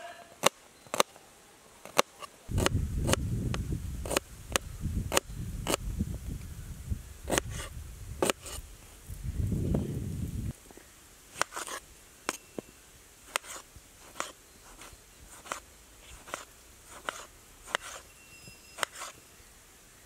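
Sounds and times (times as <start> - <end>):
knife slicing tomato: 4.0 - 4.2, 15.4 - 18.1.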